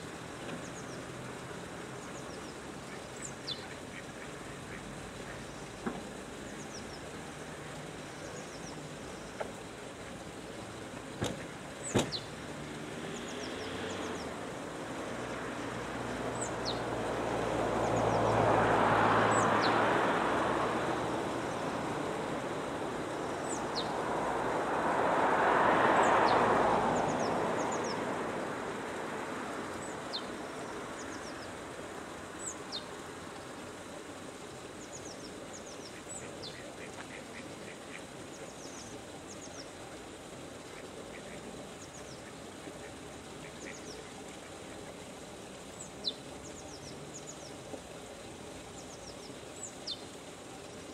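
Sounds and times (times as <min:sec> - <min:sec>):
small birds chirping: 0:01.8 - 0:09.5, 0:11.3 - 0:14.5, 0:16.2 - 0:18.4, 0:23.0 - 0:24.0, 0:29.7 - 0:31.7, 0:32.4 - 0:33.9, 0:34.5 - 0:39.8, 0:40.7 - 0:45.0, 0:45.6 - 0:50.9
passing vehicle noise: 0:11.0 - 0:35.1.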